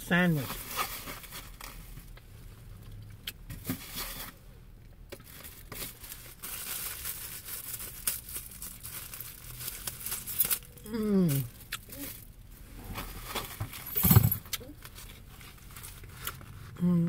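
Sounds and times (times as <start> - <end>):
packaging crinkling and rustling: 0.4 - 2.2, 5.1 - 10.8.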